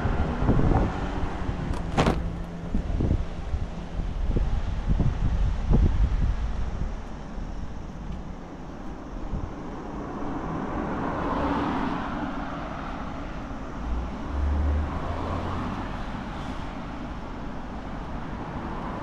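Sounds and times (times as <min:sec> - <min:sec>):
low vehicle rumble: 0:00.0 - 0:19.0
vehicle passing: 0:09.3 - 0:16.9.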